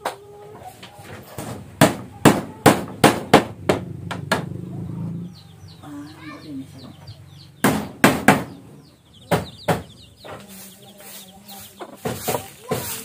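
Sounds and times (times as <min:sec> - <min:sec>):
hammer striking bamboo slats: 0:01.4 - 0:04.6, 0:07.6 - 0:08.6
broom sweeping dirt: 0:10.2 - 0:13.0.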